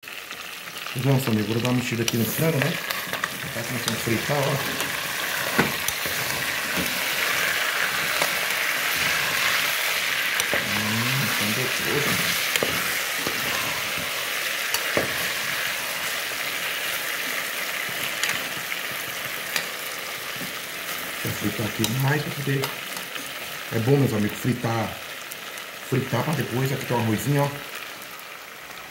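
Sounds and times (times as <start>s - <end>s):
chicken sizzling in oil: 0.0s - 28.9s
metal spoon scraping pot: 2.1s - 16.9s.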